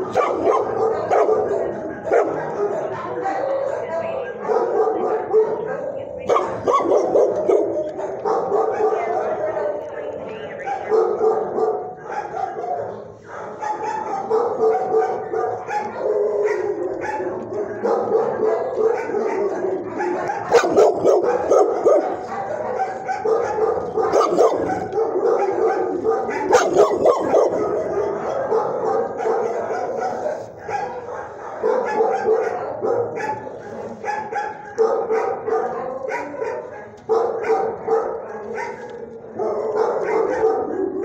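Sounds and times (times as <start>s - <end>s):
many dogs barking: 0.0s - 41.0s.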